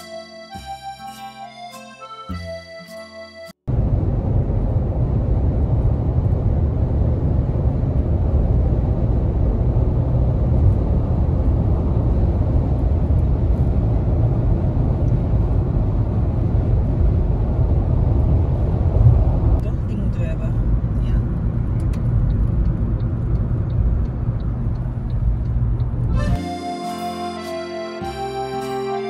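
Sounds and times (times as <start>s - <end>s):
car driving rumble: 3.7s - 26.4s.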